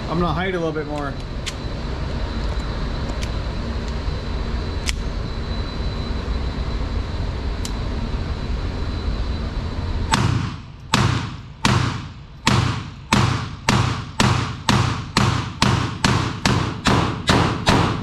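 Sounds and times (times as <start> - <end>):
steady low rumble: 0.0 - 18.0
pistol shots: 10.1 - 18.0.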